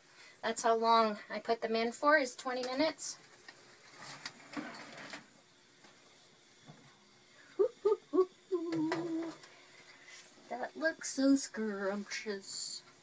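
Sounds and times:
rustling scrape: 3.3s - 5.1s.

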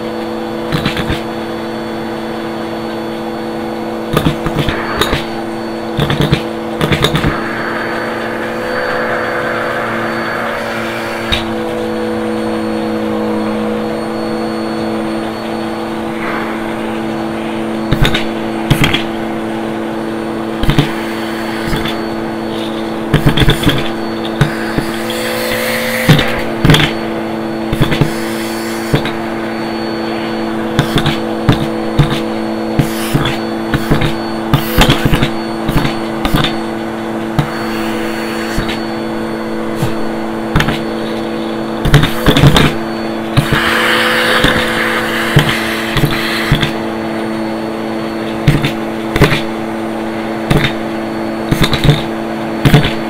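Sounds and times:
vacuum cleaner motor humming: 0.0s - 53.0s.

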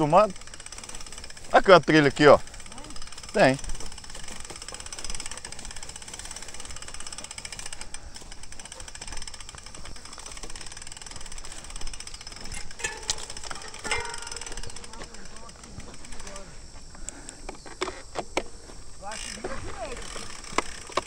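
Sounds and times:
bike freewheel hub clicking: 0.0s - 21.0s.

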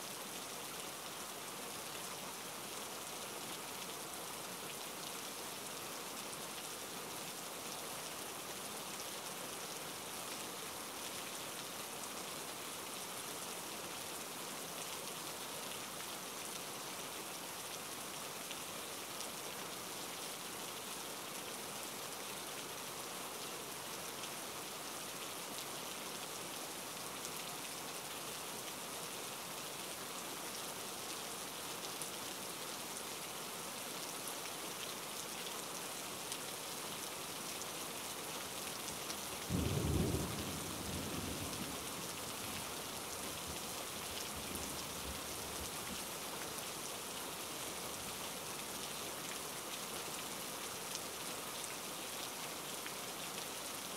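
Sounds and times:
rain hissing: 39.4s - 46.0s.

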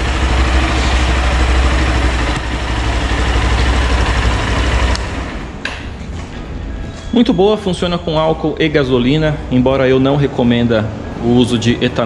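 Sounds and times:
motorcycle engine idling: 0.0s - 5.6s.

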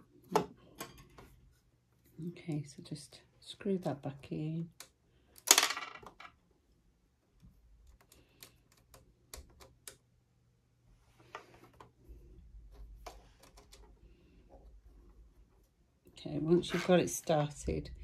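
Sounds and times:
small plastic clicks: 7.7s - 10.1s.

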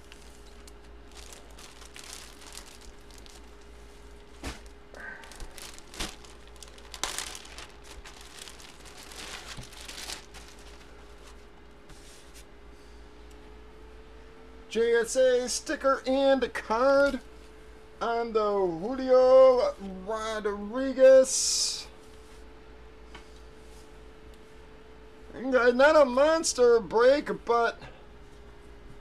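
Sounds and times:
plastic bag crinkling: 0.0s - 11.6s
faint steady hum: 0.0s - 29.0s.

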